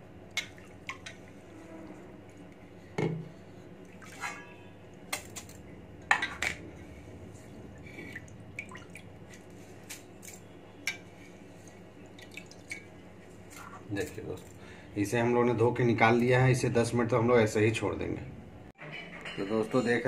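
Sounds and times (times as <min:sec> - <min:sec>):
water sloshing in a bowl: 0:00.3 - 0:02.6, 0:03.2 - 0:06.4, 0:07.3 - 0:10.4, 0:11.5 - 0:14.6.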